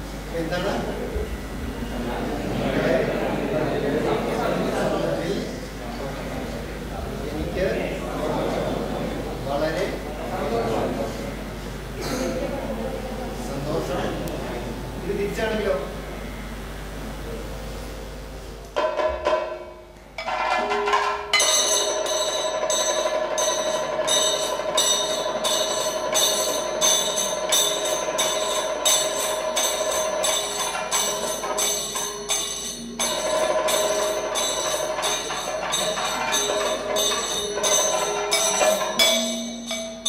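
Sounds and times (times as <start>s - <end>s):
small hand cymbals beating: 19.5s - 40.0s.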